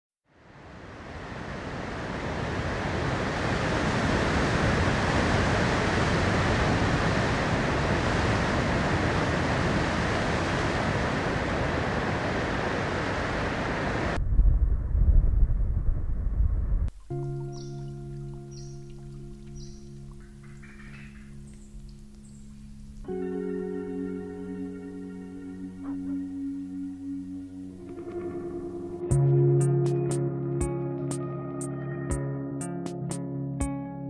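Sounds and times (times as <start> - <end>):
surf breaking among rocks: 1.4 - 14.2
deep uneven rumble: 14.2 - 17.1.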